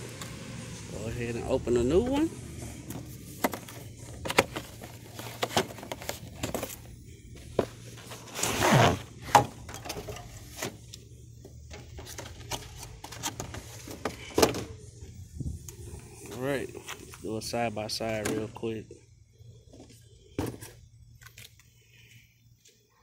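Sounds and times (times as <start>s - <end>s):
cardboard box rustling and clicking: 3.4s - 6.8s.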